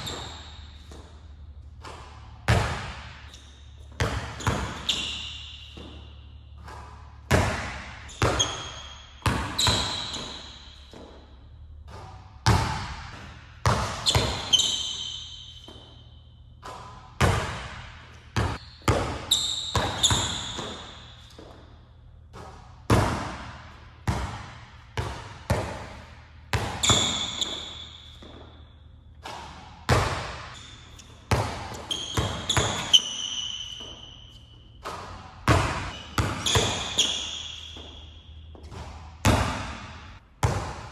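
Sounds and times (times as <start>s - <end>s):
basketball bouncing in a gym: 0.0s - 40.9s
sneakers squeaking on floor: 0.0s - 40.9s.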